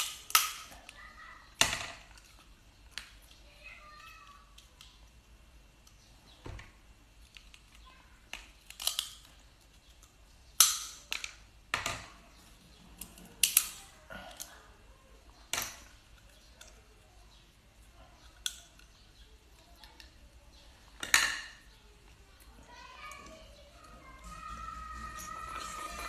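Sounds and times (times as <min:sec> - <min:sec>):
lobster shell cracking: 0:08.6 - 0:09.3.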